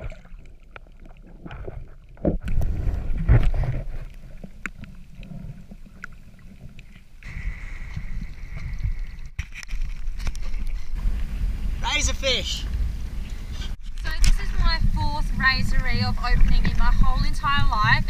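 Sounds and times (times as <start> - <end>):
clicks and knocks underwater: 0.0 - 11.3, 13.8 - 18.0
muffled underwater rumbling: 0.0 - 11.8, 12.6 - 18.0
water sloshing: 0.0 - 11.8, 13.4 - 18.0
wind on microphone: 7.2 - 18.0.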